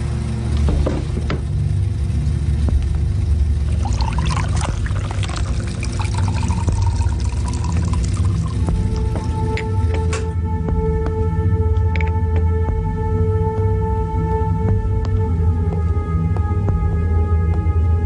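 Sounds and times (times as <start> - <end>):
coffee trickling into cup: 3.7 - 9.3
espresso machine pump humming: 3.7 - 9.6.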